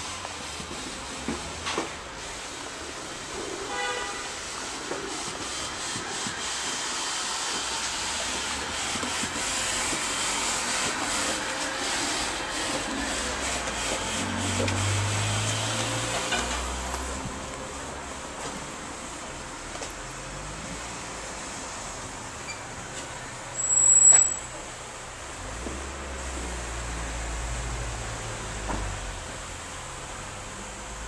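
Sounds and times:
vehicle passing: 11.9s - 18.2s.

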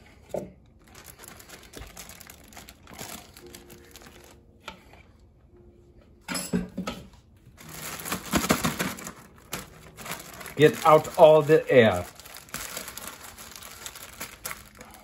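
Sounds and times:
plastic bag crinkling: 0.8s - 4.4s, 7.6s - 15.0s.

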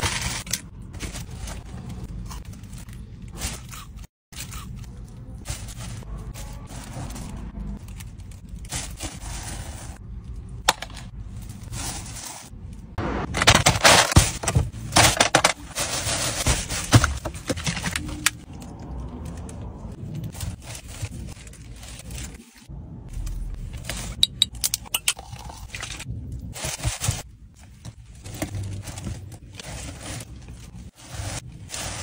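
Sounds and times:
plastic sheet rustling: 5.2s - 10.0s, 11.1s - 18.5s, 19.9s - 22.7s, 26.5s - 32.0s
foil tray crinkling and scraping: 13.4s - 18.3s, 26.6s - 32.0s.

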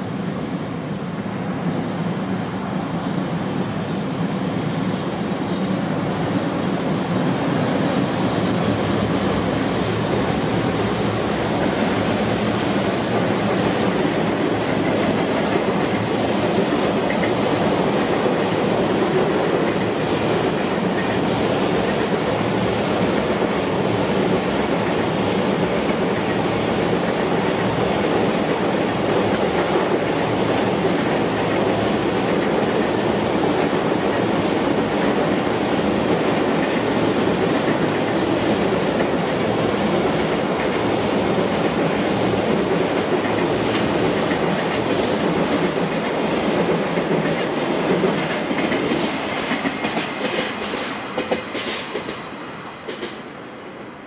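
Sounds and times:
freight train wheels clattering: 11.4s - 53.4s.

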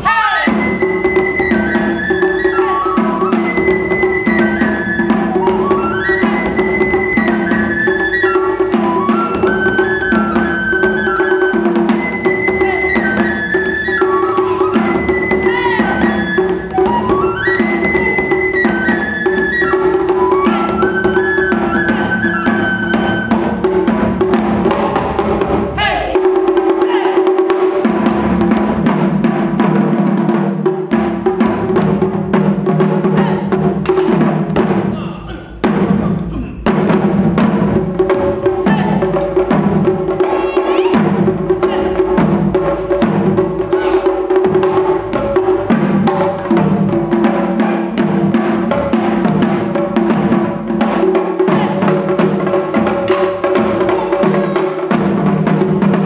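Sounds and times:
transverse flute melody: 0.0s - 25.2s, 33.0s - 33.8s, 40.2s - 42.2s, 43.6s - 44.8s, 51.4s - 52.2s, 53.5s - 54.9s
taiko drums: 0.0s - 56.0s.

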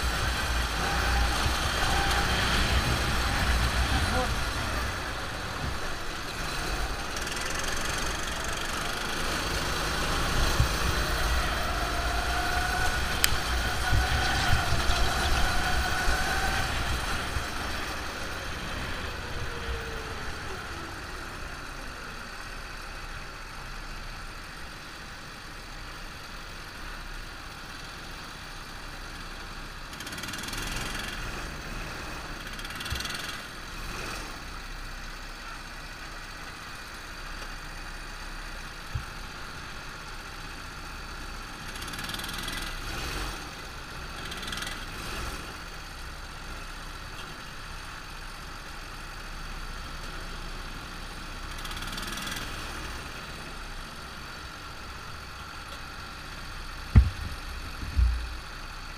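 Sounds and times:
go-kart engines running: 0.0s - 58.9s.

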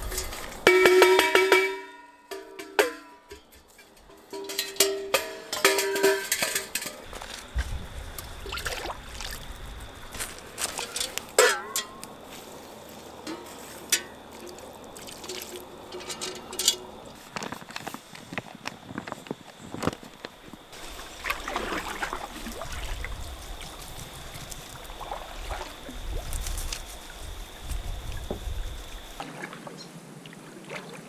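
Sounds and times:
metal cookware clanking: 0.0s - 7.1s, 10.8s - 12.1s, 13.2s - 14.2s, 15.2s - 17.0s.

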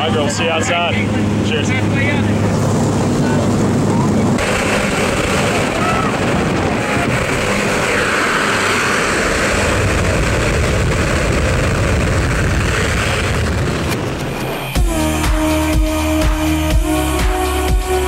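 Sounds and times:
wind rushing over microphone: 0.0s - 14.8s
propeller plane engine drone: 0.0s - 18.0s
music: 14.4s - 18.0s.

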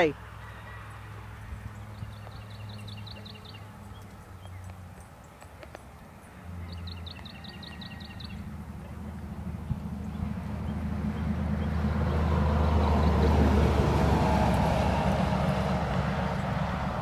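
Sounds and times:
steady low rumble: 7.8s - 13.6s.

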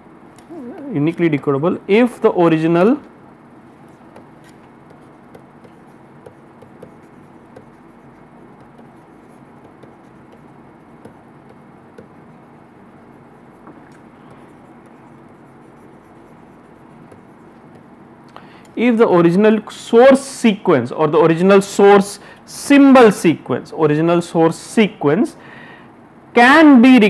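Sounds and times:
low hum and hiss: 0.0s - 27.0s
stylus tapping on screen: 3.9s - 8.0s, 8.6s - 12.3s, 17.0s - 17.9s.

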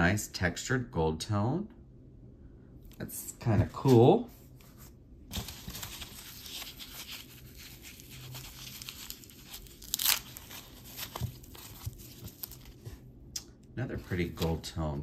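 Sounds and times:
packing material crinkling: 5.3s - 12.8s
packing material ripping: 5.3s - 12.8s.

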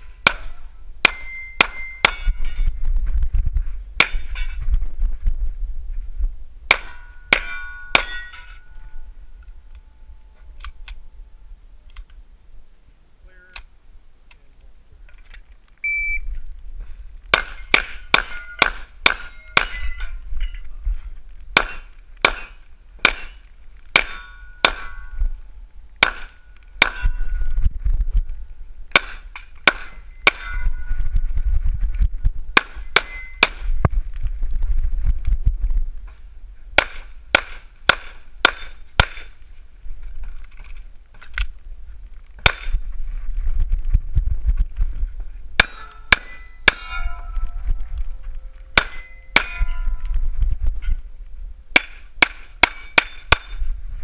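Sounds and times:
steel targets ringing: 0.3s - 2.7s, 4.0s - 4.6s, 6.7s - 9.2s, 17.3s - 20.6s, 24.0s - 25.2s, 26.0s - 27.5s, 29.0s - 31.0s, 32.6s - 33.6s, 36.8s - 39.5s, 42.4s - 42.8s, 45.6s - 47.6s, 48.7s - 50.0s, 51.8s - 53.7s
pistol shots: 21.6s - 23.4s, 26.0s - 27.0s.

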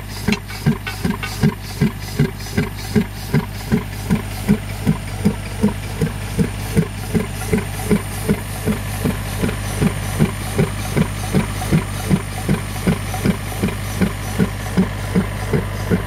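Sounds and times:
soil-piercing tool hammering: 0.0s - 16.0s
steady engine hum: 0.0s - 16.0s.

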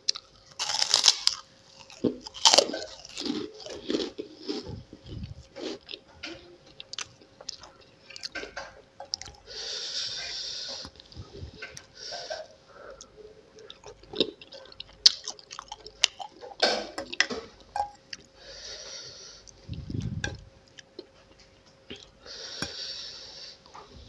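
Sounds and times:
chewing: 0.1s - 9.4s, 10.1s - 18.3s.

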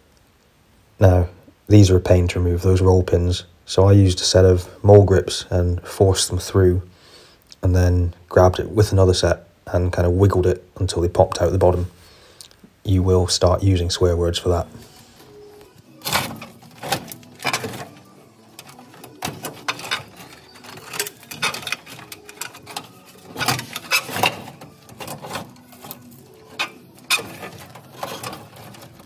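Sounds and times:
wires scraping and rustling: 13.3s - 29.0s.

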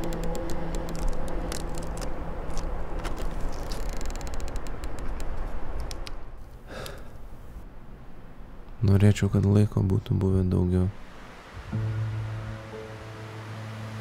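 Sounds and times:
droning music chord: 11.6s - 14.0s.

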